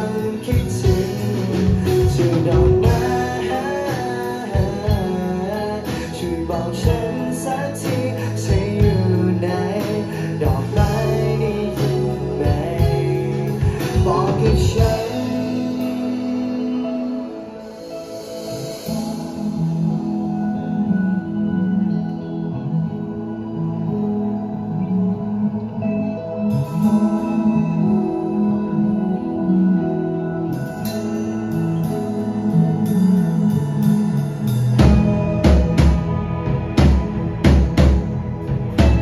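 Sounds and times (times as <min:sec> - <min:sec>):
drum kit: 0:00.0 - 0:20.6, 0:30.5 - 0:39.0
electric bass: 0:00.0 - 0:39.0
electric guitars: 0:00.0 - 0:39.0.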